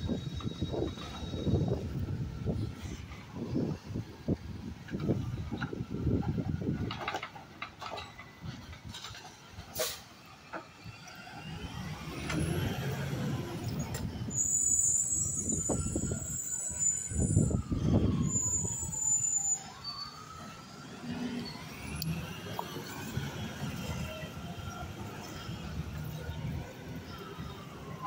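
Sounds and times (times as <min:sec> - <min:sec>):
truck diesel engine: 0:06.7 - 0:16.8, 0:20.4 - 0:28.0
air brakes hissing: 0:09.7 - 0:10.2.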